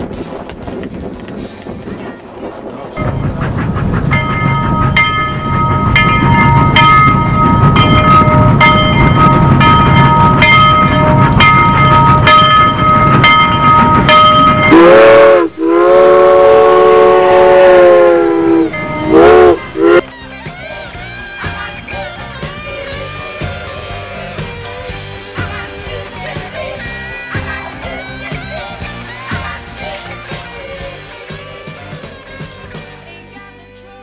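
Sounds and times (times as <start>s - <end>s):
steam train chugging: 0.1s - 32.8s
steam whistle blast: 14.5s - 20.0s.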